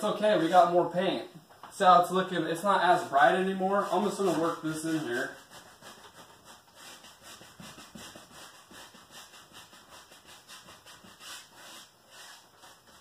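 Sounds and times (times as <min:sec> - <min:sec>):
paint brush rubbing on canvas: 0:02.8 - 0:13.0.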